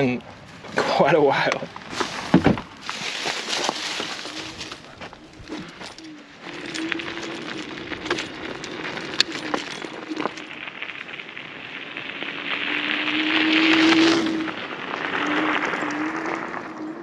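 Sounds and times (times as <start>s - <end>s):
tyre hiss on gravel: 0.4s - 16.8s
electric motor whine: 3.7s - 10.5s, 12.4s - 17.0s.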